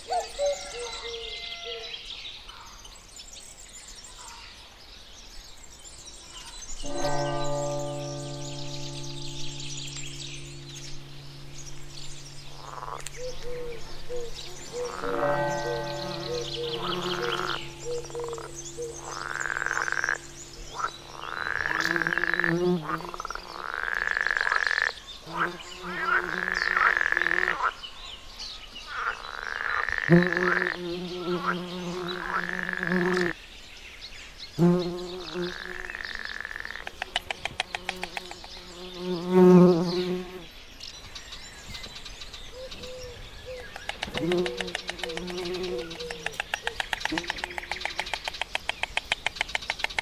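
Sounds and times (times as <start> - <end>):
faint bird chirps: 5.6 - 23.6, 34.5 - 50.0
high whistled note: 6.8 - 22.1
fly buzzing: 6.9 - 27.7, 29.7 - 33.4, 34.6 - 40.5, 44.0 - 48.2
frogs trilling: 6.9 - 27.8, 31.4 - 33.4, 42.6 - 50.0
quick run of ticks: 36.8 - 38.6, 43.7 - 50.0.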